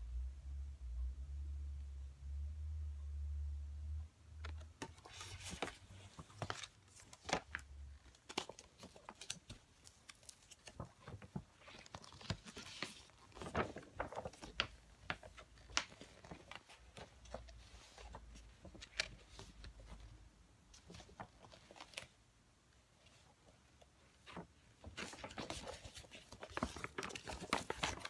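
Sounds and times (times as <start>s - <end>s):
glossy paper crinkling: 4.4s - 20.1s, 23.0s - 28.0s.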